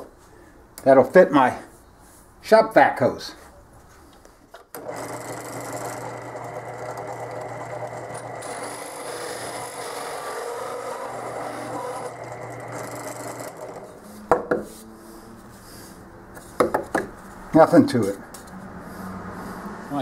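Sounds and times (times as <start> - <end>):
drill press motor hum: 4.8 - 14.0
hole saw rasping through wood: 4.8 - 14.0.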